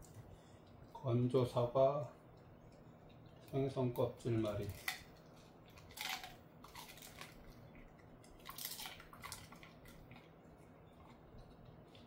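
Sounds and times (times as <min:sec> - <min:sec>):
dog chewing a hard treat: 0:04.6 - 0:12.0.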